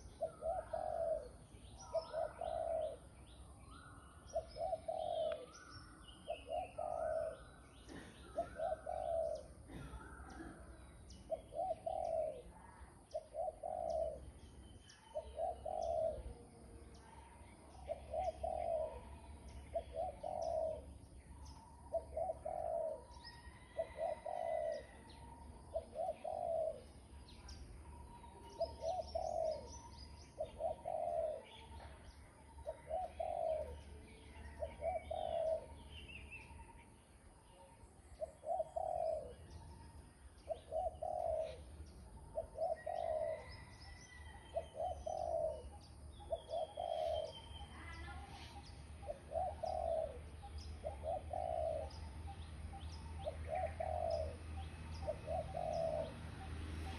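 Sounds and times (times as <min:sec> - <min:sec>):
dove cooing: 0:00.0 - 0:03.5, 0:04.2 - 0:36.6, 0:37.4 - 0:56.9
small birds chirping faintly: 0:00.0 - 0:56.9.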